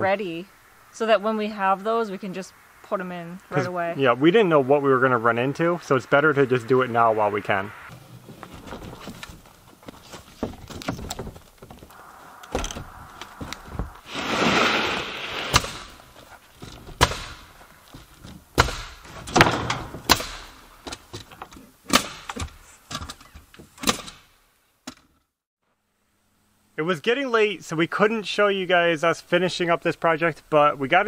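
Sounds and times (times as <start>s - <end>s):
rushing noise: 0.0s - 9.2s, 11.9s - 16.4s
nails being driven into wood: 15.4s - 16.0s, 16.6s - 25.1s.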